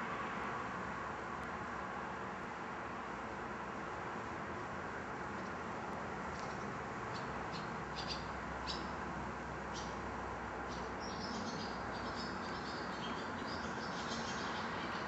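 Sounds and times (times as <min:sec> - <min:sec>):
small birds chirping: 0:06.3 - 0:09.0, 0:09.7 - 0:10.0, 0:10.6 - 0:15.0.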